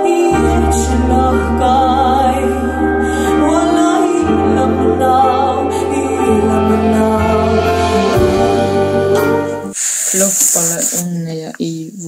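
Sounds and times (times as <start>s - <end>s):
woman singing slow song: 0.0s - 11.0s
deep bass notes: 0.3s - 9.7s.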